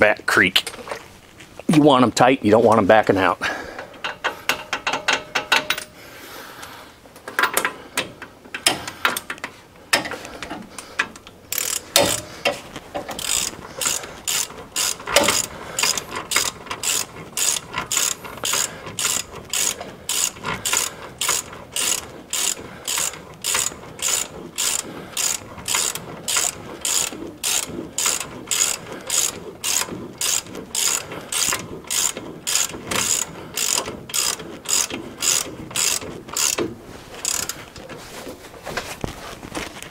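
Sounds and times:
socket ratchet clicking: 11.5 - 12.2, 13.1 - 36.6, 37.2 - 37.6.

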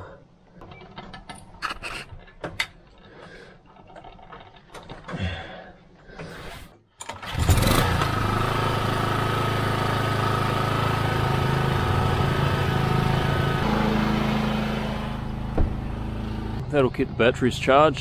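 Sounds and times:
generator engine running: 7.1 - 17.0.

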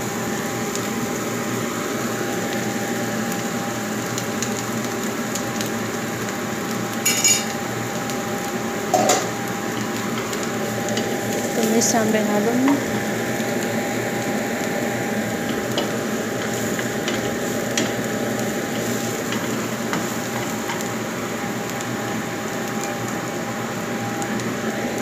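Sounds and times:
food sizzling in hot oil: 0.0 - 25.0.

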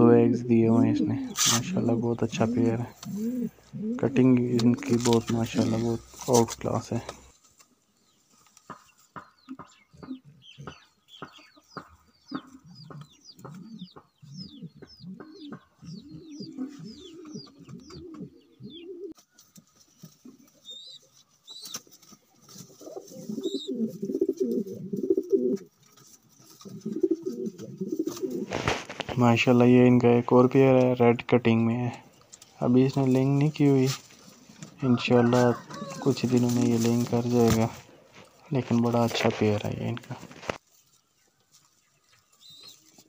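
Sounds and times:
pigeons cooing: 0.0 - 6.1, 11.8 - 28.9, 32.1 - 38.7.

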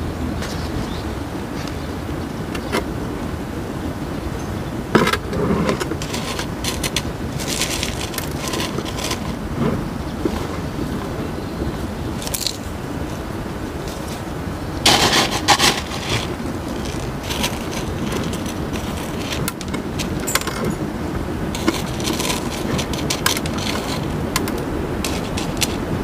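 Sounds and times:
steady low rumble: 0.0 - 26.0
gravel clattering in plastic scoop: 5.2 - 10.7, 14.9 - 20.9, 21.6 - 25.9.

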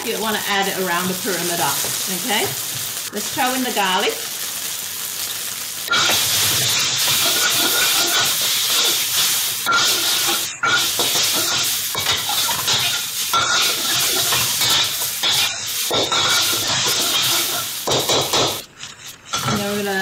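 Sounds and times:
food sizzling in hot oil: 0.0 - 20.0
metal spatula scraping wok: 5.9 - 20.0.

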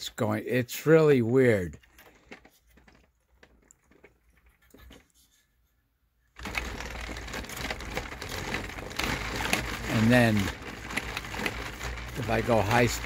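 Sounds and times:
motor rotors clattering: 6.4 - 13.0.

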